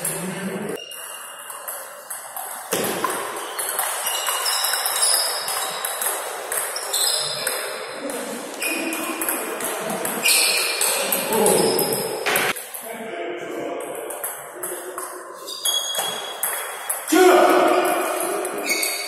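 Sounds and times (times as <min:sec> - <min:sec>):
table tennis ball hits: 0:00.8 - 0:07.8, 0:08.8 - 0:12.6, 0:15.8 - 0:19.0.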